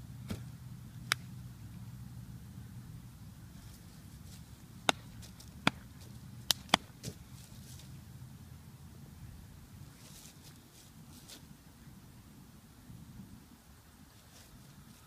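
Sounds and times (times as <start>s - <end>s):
low steady hum: 0.0s - 15.0s
sharp hand slaps: 4.8s - 5.9s, 6.5s - 6.9s.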